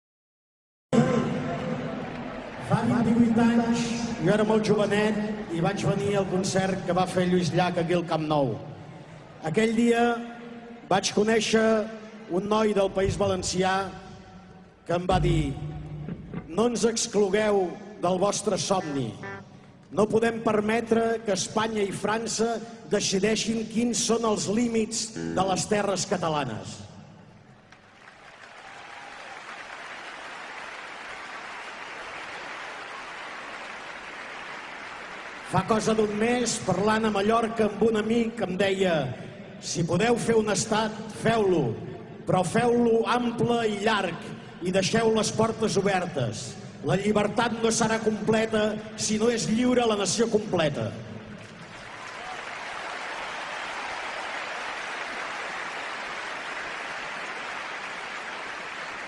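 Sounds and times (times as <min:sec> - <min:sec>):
crowd applauding: 0:01.0 - 0:07.3, 0:27.6 - 0:36.6, 0:51.3 - 0:59.0.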